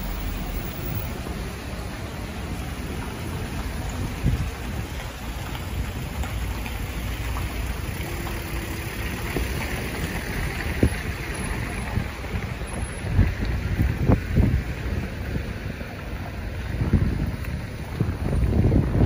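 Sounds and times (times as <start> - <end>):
tyres hissing on wet asphalt: 0.0 - 19.0
wind rumble on microphone: 0.4 - 19.0.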